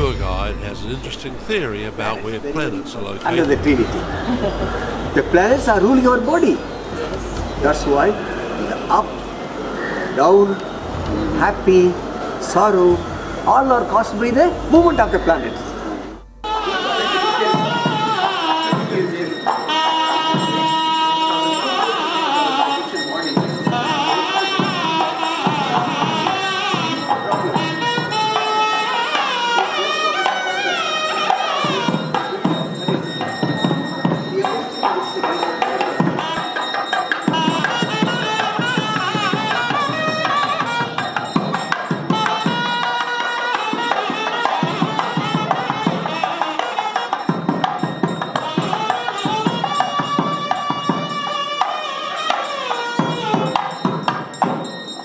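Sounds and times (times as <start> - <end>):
barrel drum strokes: 0.0 - 5.6, 10.6 - 16.8
double-reed pipe melody: 0.0 - 54.1.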